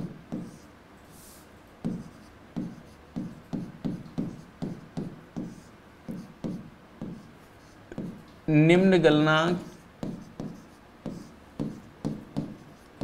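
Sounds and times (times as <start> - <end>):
pen tapping on whiteboard: 0.0 - 0.6, 1.8 - 7.3, 7.9 - 8.3, 9.6 - 12.8.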